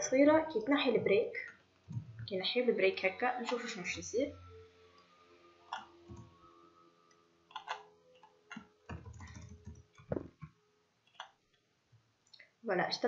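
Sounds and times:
keyboard keystrokes: 8.9 - 10.3.

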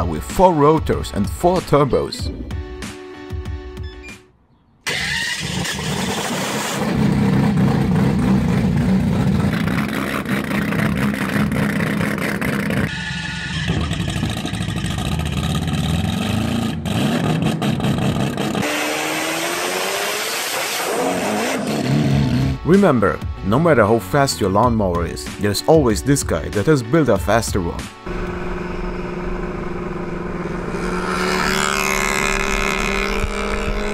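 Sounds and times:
rotary engine revving loudly: 4.9 - 22.6, 28.1 - 33.9.

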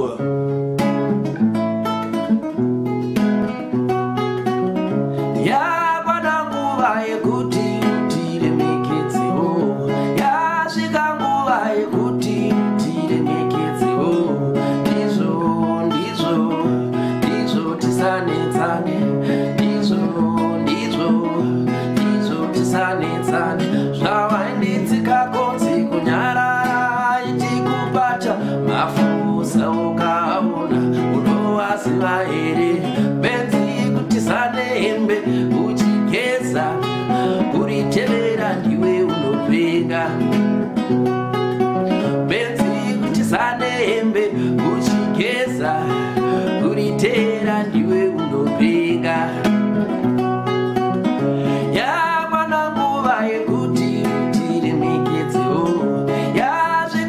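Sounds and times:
man singing: 0.0 - 0.9, 5.1 - 57.0
acoustic guitar chords: 0.0 - 57.0.

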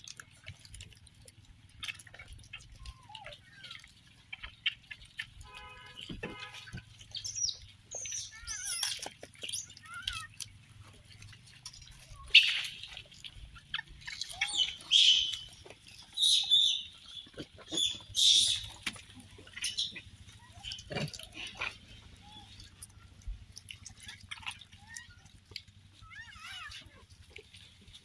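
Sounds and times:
monkeys squealing and chirping: 1.8 - 4.9, 7.0 - 23.2, 23.8 - 27.0
monkeys screeching: 2.5 - 3.9, 7.1 - 10.4, 11.9 - 22.9, 23.9 - 25.3, 26.0 - 27.0.

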